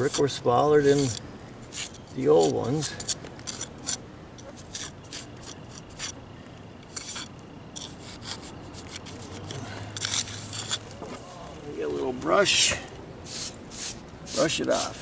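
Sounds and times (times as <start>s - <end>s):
steel jointer scraping mortar: 0.0s - 6.2s, 6.9s - 10.8s.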